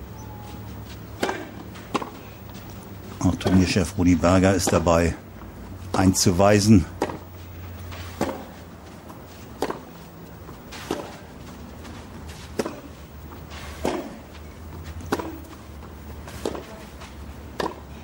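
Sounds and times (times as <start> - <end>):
steady low hum: 0.0 - 18.0
tennis racket hitting ball: 1.2 - 2.2, 6.9 - 7.3, 7.9 - 10.0, 10.6 - 15.6, 16.2 - 17.9.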